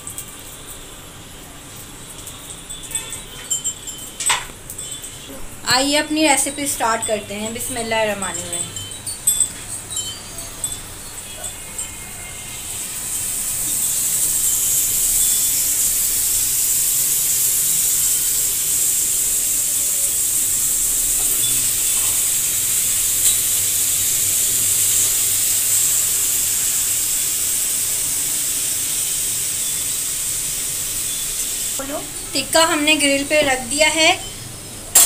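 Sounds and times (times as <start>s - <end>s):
chicken sizzling on grill pan: 11.2s - 35.0s.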